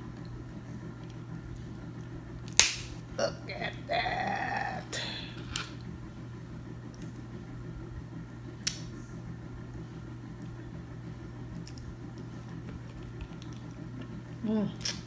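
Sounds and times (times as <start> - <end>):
low hum: 0.0 - 15.0
soft eating sounds: 11.5 - 15.0.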